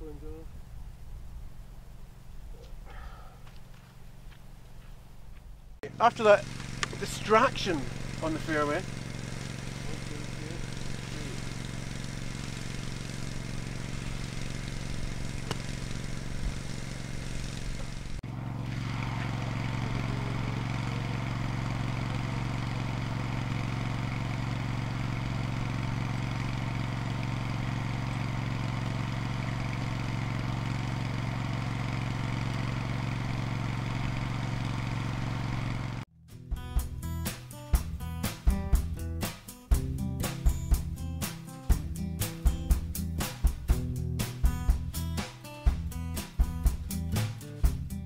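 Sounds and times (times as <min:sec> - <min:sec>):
small engine humming: 0:05.8 - 0:36.1.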